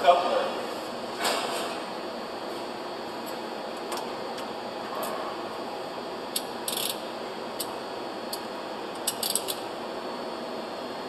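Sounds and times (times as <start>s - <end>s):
steady background noise: 0.0s - 11.0s
socket wrench ratchet clicking: 6.4s - 7.0s, 9.0s - 9.6s.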